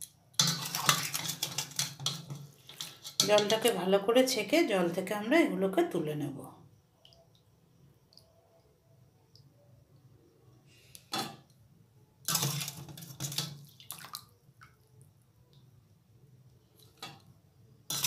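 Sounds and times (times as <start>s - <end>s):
water splashing and dripping: 0.0s - 3.5s, 12.3s - 14.9s.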